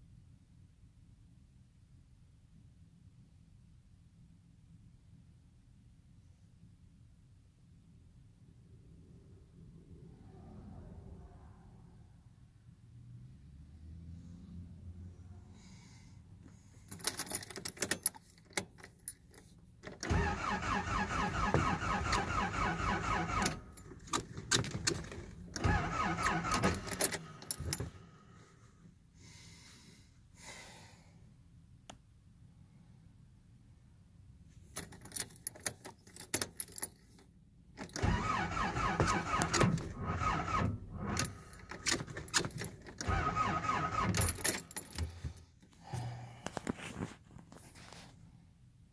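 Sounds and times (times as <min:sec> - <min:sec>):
starter motor cranking engine: 0:20.0 - 0:24.1, 0:24.8 - 0:27.7, 0:37.8 - 0:44.4.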